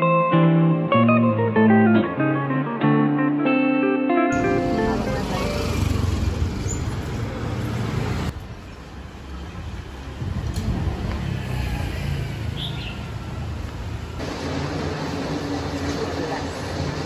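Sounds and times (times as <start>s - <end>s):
road traffic rumble: 4.4s - 17.0s.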